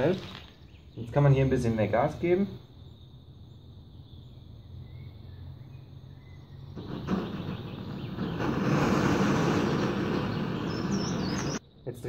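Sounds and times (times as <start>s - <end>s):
gas stove burner hissing: 6.8s - 11.6s.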